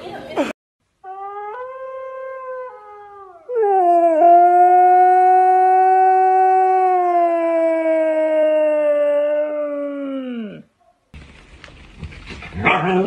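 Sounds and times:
husky howling: 1.0s - 10.7s.

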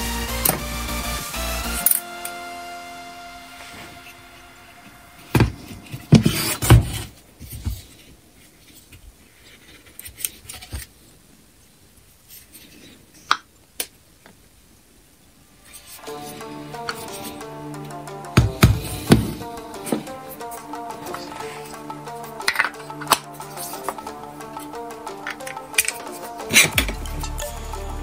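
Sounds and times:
background music with sustained notes: 0.0s - 6.7s, 15.6s - 28.0s
plastic parts knocking and rubbing: 5.3s - 11.0s.

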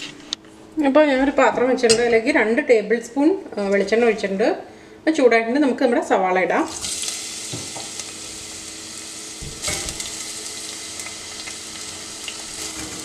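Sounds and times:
onions sizzling in oil: 6.7s - 13.0s.

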